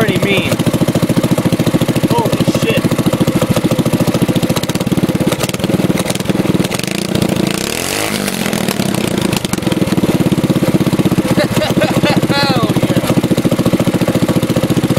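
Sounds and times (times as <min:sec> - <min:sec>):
engine revving: 0:00.0 - 0:14.9
small engine idling: 0:00.0 - 0:14.9.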